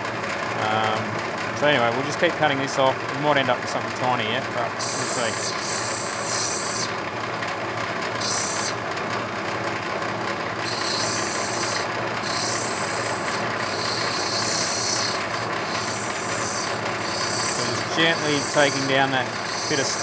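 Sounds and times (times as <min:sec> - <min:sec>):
grinding wheel motor hum: 0:00.0 - 0:20.0
high hissing grind of stone: 0:04.8 - 0:06.9, 0:08.2 - 0:08.8, 0:10.6 - 0:20.0.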